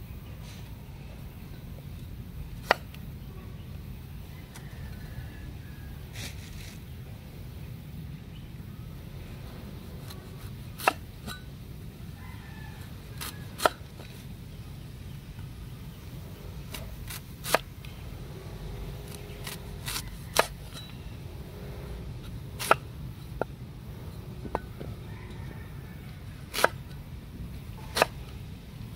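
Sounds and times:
steady low rumble: 13.9s - 28.9s.

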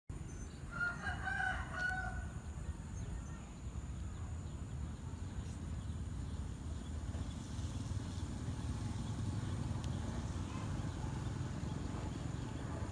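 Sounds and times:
rooster crowing: 0.7s - 2.4s.

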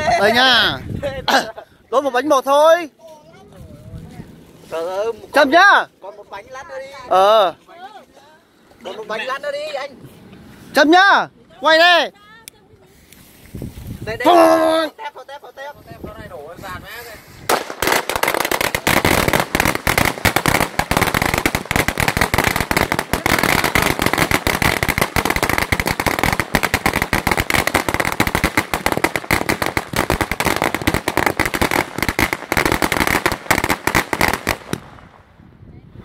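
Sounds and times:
firecrackers crackling: 17.0s - 35.3s.

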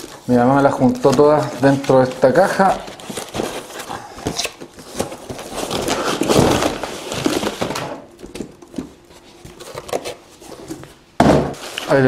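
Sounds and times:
parcels sliding and clattering: 0.0s - 12.0s.

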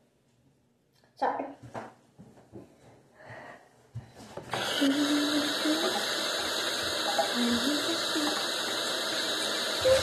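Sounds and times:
water running from faucet: 4.6s - 10.0s.

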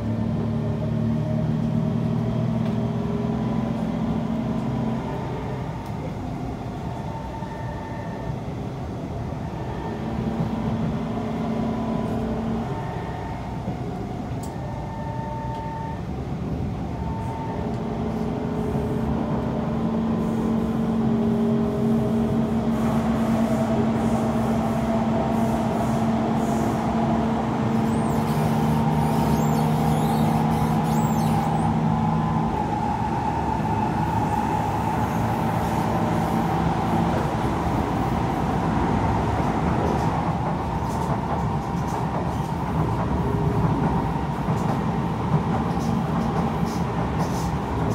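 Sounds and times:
train motors humming: 0.0s - 47.9s
train wheels rumbling: 15.5s - 47.9s.

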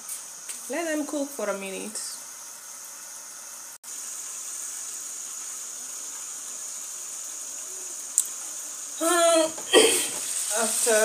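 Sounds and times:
stew simmering hiss: 0.0s - 11.0s.

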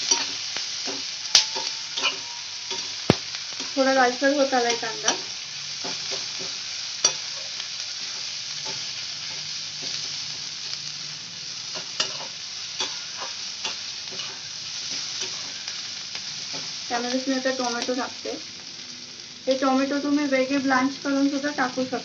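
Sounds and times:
metal spatula scraping pan: 0.0s - 3.8s, 11.8s - 15.8s
onions sizzling in hot oil: 0.0s - 22.0s.

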